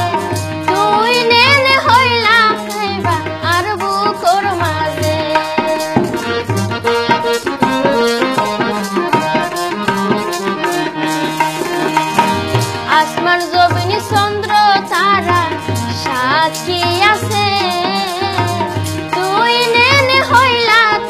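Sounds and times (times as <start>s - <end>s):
tabla drumming: 0.0s - 21.0s
melodic instruments: 6.1s - 13.4s.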